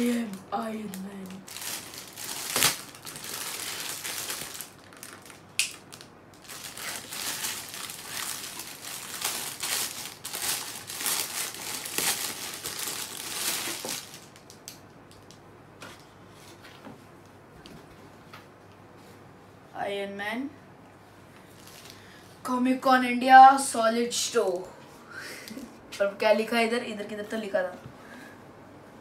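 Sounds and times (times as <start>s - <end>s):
plastic bag crinkling: 0.0s - 14.6s.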